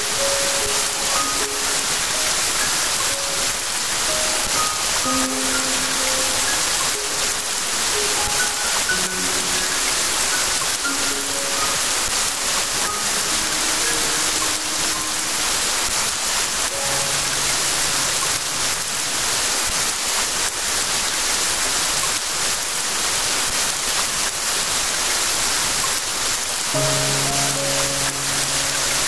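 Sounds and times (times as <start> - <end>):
steady rain: 0.0 - 29.0.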